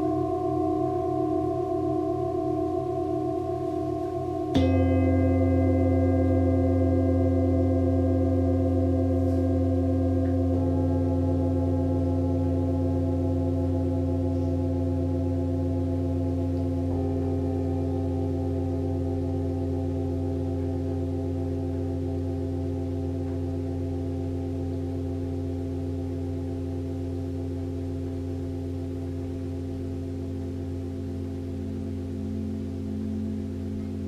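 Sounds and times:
singing bowl struck: 0:00.0 - 0:34.0
singing bowls ringing: 0:00.0 - 0:34.0.

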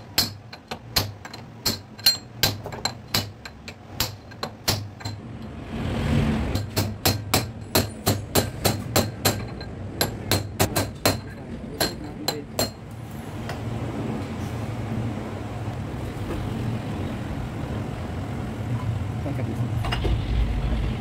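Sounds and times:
metal-on-metal knocks: 0:06.5 - 0:12.8.

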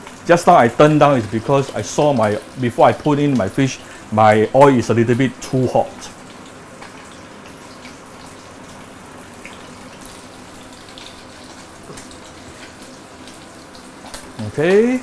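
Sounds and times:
fish frying in hot oil: 0:00.0 - 0:15.0.

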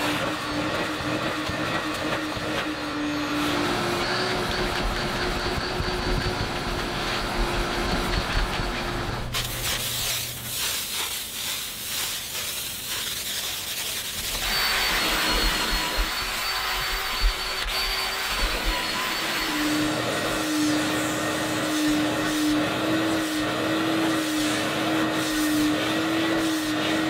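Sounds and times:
drill scrub brush whine: 0:00.0 - 0:27.0
vacuum nozzle on seat cushion: 0:00.0 - 0:27.0
spray hiss: 0:09.3 - 0:15.5.

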